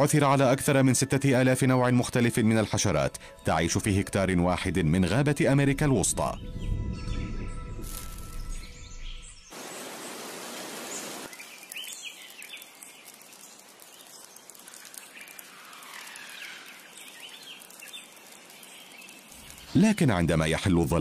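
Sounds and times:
bird chirps: 0:06.4 - 0:09.8, 0:10.8 - 0:19.9
rainforest hiss: 0:09.5 - 0:20.7.

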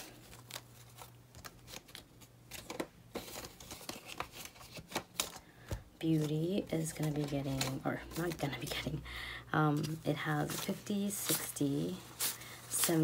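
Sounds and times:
paper banknotes rustling: 0:00.0 - 0:09.0, 0:09.7 - 0:13.0.

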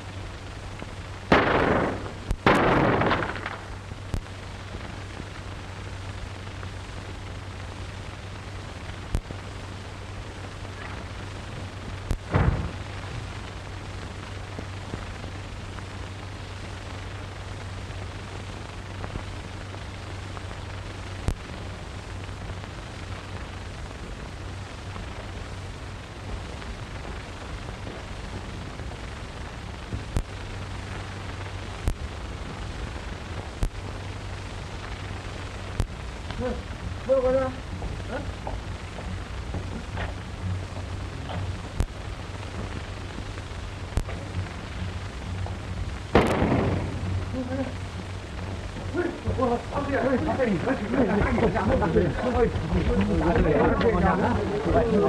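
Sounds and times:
film soundtrack hiss and hum: 0:00.0 - 0:55.0
clicks and pops: 0:01.3 - 0:04.3
heavy thump: 0:12.3 - 0:12.9.

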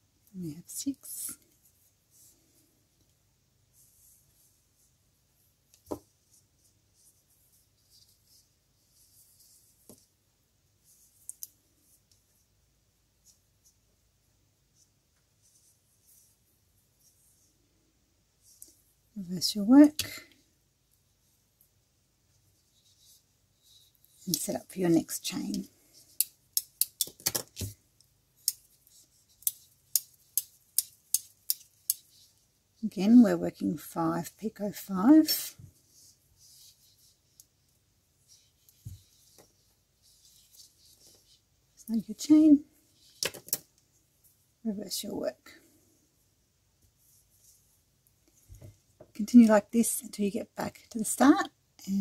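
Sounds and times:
thread rustling through fingers: 0:35.7 - 0:42.0.

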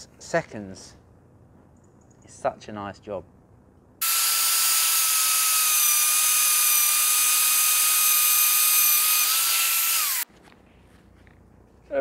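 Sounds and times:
cutter hissing through steel: 0:04.0 - 0:10.2
magnetic drill whining: 0:04.0 - 0:10.2.

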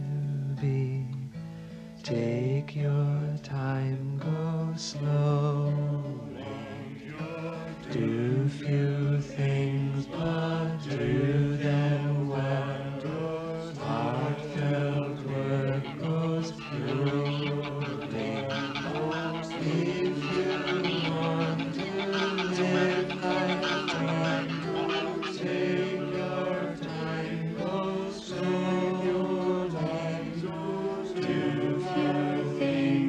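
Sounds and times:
voices singing slow song: 0:00.0 - 0:33.0.

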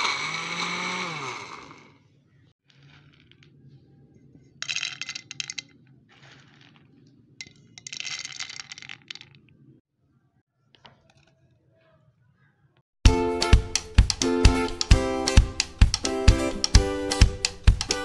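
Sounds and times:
chickpeas rattling into a jar: 0:02.7 - 0:03.5, 0:04.6 - 0:09.5.

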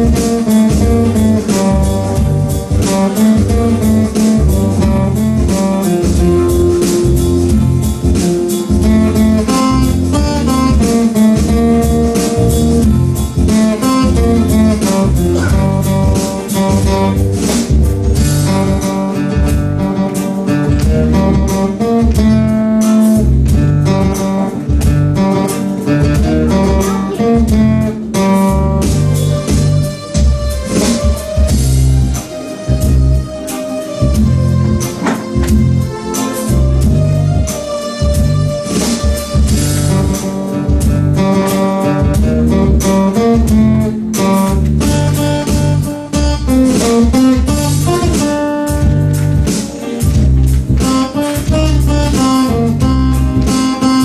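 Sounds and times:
acoustic guitar strumming: 0:00.0 - 0:54.0
electronic keyboard: 0:00.0 - 0:54.0.

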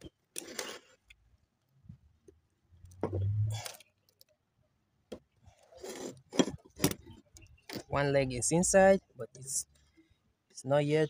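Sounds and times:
metal scraping and clinking: 0:05.7 - 0:07.9.

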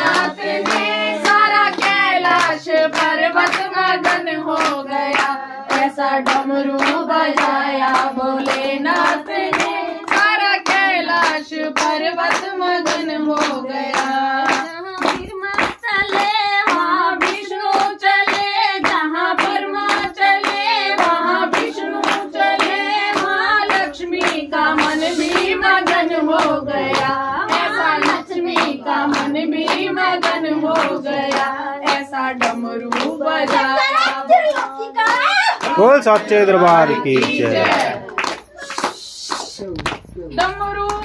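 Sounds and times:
hand-clapping: 0:00.0 - 0:41.0
voices singing devotional song: 0:00.0 - 0:41.0.

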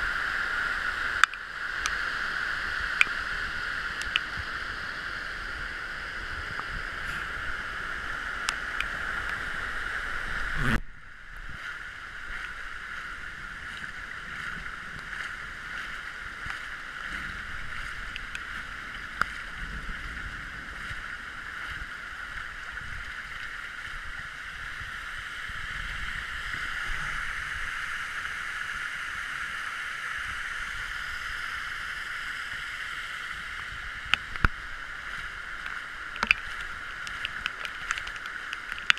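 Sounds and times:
floodwater rushing: 0:00.0 - 0:38.9
sharp ticks: 0:04.0 - 0:04.3.

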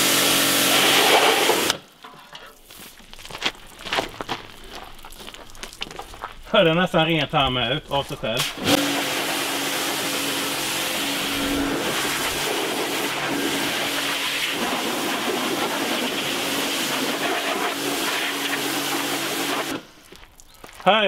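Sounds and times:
pressure washer jet hissing: 0:00.0 - 0:01.8, 0:08.4 - 0:20.0
pressure washer motor hum: 0:00.0 - 0:01.8, 0:08.4 - 0:20.0.

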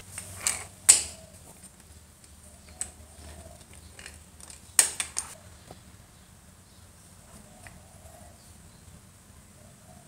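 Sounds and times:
hand drill gear clicks and clunks: 0:00.0 - 0:01.1, 0:01.8 - 0:05.4.

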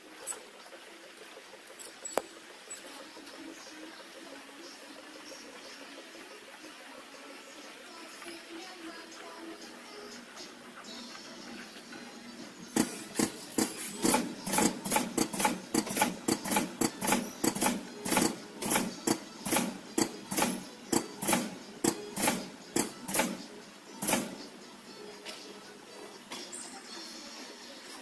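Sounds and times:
machine mechanism clacking: 0:12.7 - 0:24.5.

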